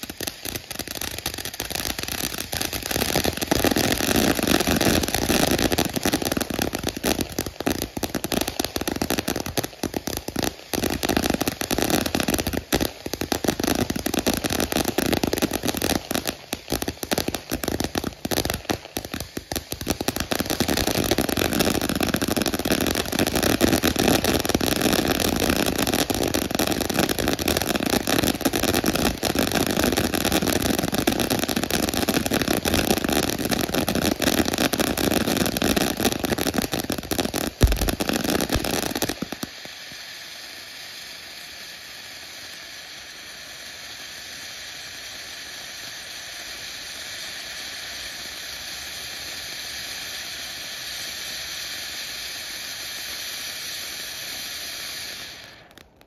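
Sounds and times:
firework rushing and crackling: 0.0 - 56.0
spark fountain hissing: 0.0 - 56.0
sharp firework pop: 37.6 - 39.4.

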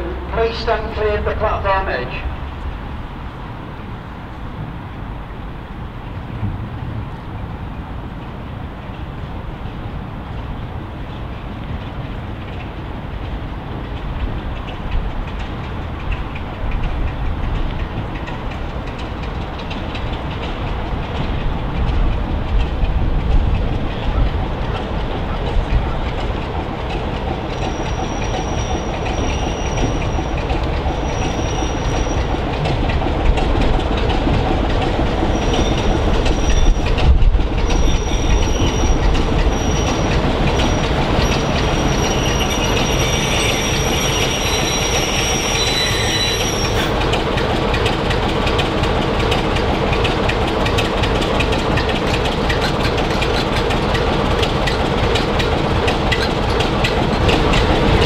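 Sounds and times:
diesel locomotive engine running: 0.0 - 58.0
running gear squealing: 27.5 - 32.4, 37.7 - 47.0.

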